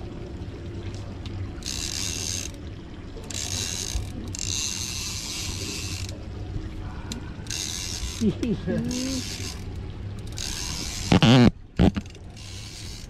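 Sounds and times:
fishing reel ratcheting whir: 0:01.6 - 0:02.6, 0:03.2 - 0:06.2, 0:07.4 - 0:13.0.

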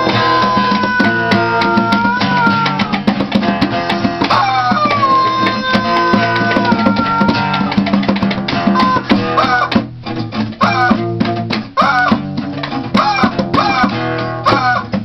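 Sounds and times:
rubber chicken squealing: 0:00.0 - 0:03.0, 0:04.2 - 0:07.8, 0:08.6 - 0:09.8, 0:10.6 - 0:11.0, 0:11.8 - 0:12.2, 0:13.0 - 0:15.0
bongos: 0:00.0 - 0:15.0
strummed guitar: 0:00.0 - 0:15.0.

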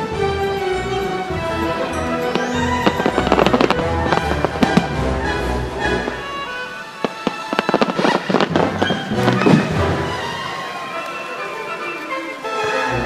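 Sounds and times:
music playing: 0:00.0 - 0:13.0
firework shells bursting: 0:01.4 - 0:11.6.

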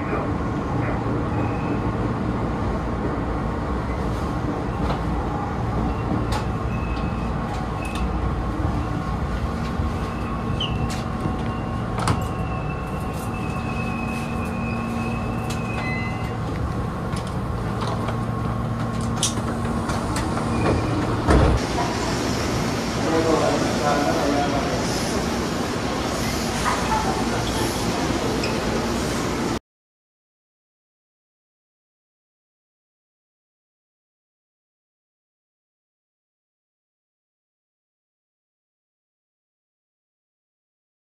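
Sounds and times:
electric train equipment hum: 0:04.5 - 0:29.6.

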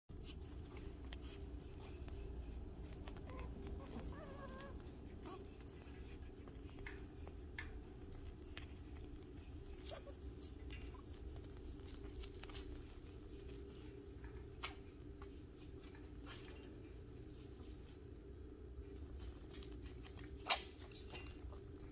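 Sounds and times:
low steady hum: 0:00.1 - 0:21.9
puppy paws clicking and scrabbling: 0:00.1 - 0:21.9
puppy whimper: 0:01.8 - 0:07.1, 0:09.6 - 0:12.1.

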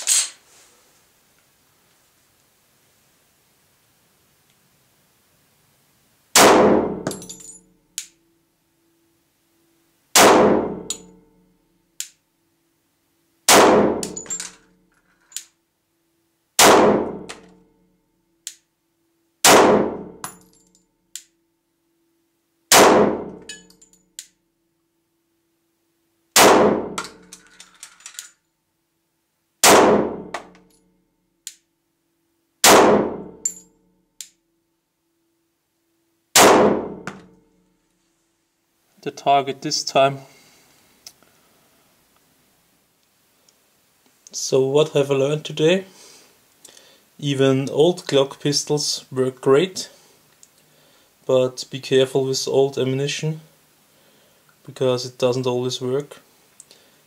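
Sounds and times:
pistol shots echoing in cellar: 0:06.3 - 0:07.4, 0:10.1 - 0:11.1, 0:13.5 - 0:14.4, 0:16.6 - 0:17.5, 0:19.4 - 0:20.3, 0:22.7 - 0:23.4, 0:26.4 - 0:27.2, 0:29.6 - 0:30.6, 0:32.6 - 0:33.5, 0:36.4 - 0:37.1
light metallic clink: 0:07.1 - 0:08.2, 0:10.9 - 0:11.2, 0:23.4 - 0:24.4, 0:33.4 - 0:33.8.

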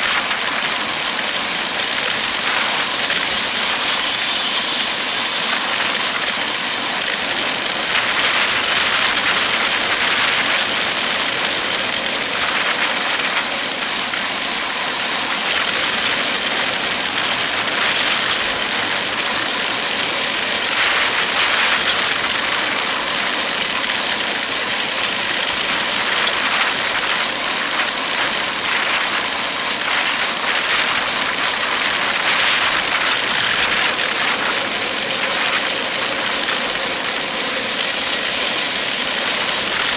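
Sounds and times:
road and tyre noise: 0:00.0 - 0:39.9.

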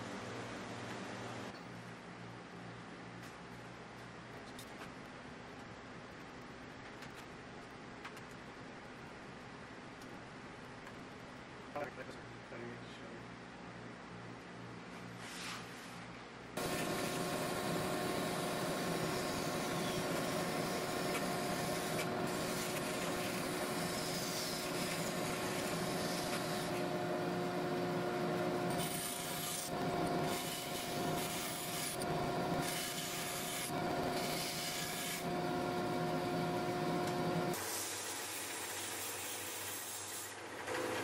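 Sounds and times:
saw blade rasping through wood: 0:16.6 - 0:27.0
band saw running: 0:16.6 - 0:40.9.

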